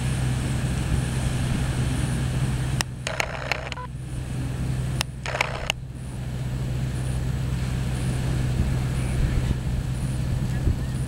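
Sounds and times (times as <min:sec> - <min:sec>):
wind buffeting microphone: 0:00.0 - 0:03.0, 0:07.4 - 0:11.0
sharp click: 0:02.8 - 0:03.8.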